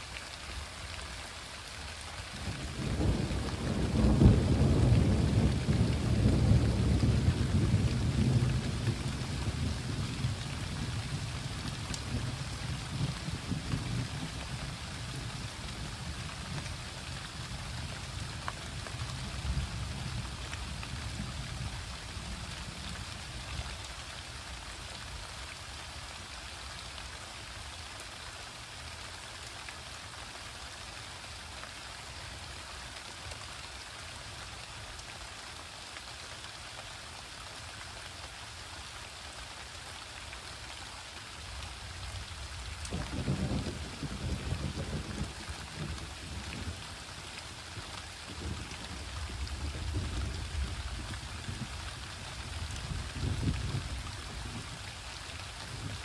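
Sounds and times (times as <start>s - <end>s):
steady rain falling: 0.0s - 56.0s
low thunder rumbling: 2.5s - 23.0s, 42.4s - 46.9s, 48.3s - 54.7s.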